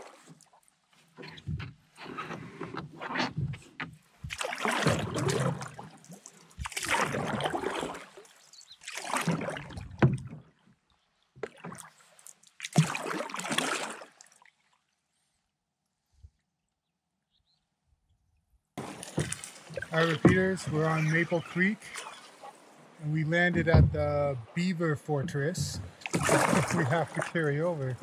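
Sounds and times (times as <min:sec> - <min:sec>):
paddle swishing water: 0:00.0 - 0:16.3, 0:18.8 - 0:28.0
short low knocks: 0:23.4 - 0:24.5.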